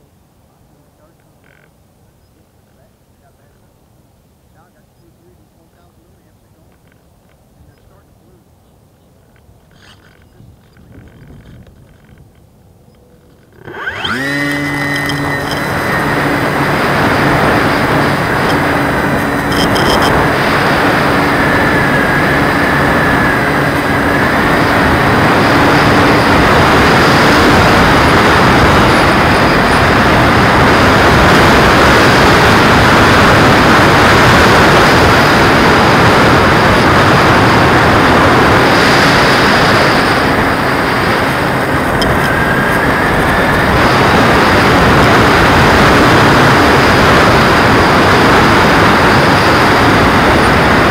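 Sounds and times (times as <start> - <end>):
propeller noise: 0.0 - 50.9
airflow rush: 13.7 - 50.9.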